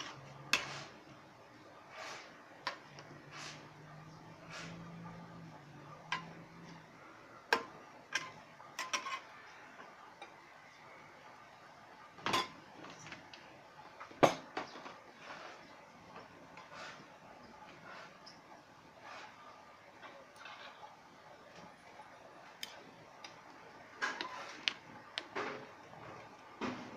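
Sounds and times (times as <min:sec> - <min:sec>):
metal ladle scraping pot: 0:00.0 - 0:01.0, 0:01.9 - 0:05.4, 0:08.2 - 0:09.5, 0:20.3 - 0:21.0.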